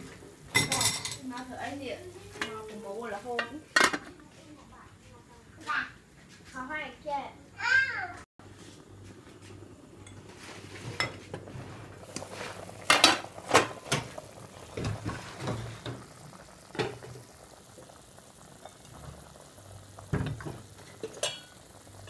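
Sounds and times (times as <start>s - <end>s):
soup simmering: 0.0s - 3.6s, 8.4s - 22.0s
pot lid clanking: 0.5s - 1.2s, 3.4s - 4.1s, 12.2s - 14.2s, 20.2s - 21.8s.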